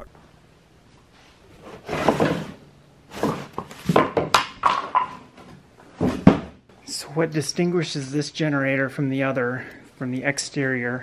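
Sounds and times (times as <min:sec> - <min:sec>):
cardboard scraping and rustling: 0:01.6 - 0:04.1.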